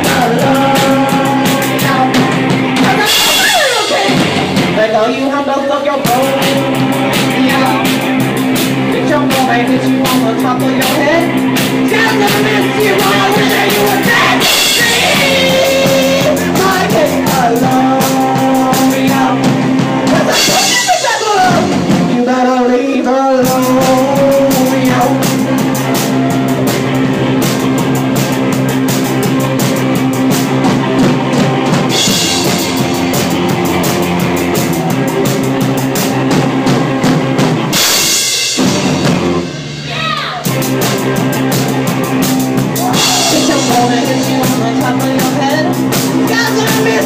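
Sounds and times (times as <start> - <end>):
rock band playing: 0.0 - 47.0
woman singing: 11.9 - 19.5, 42.9 - 47.0.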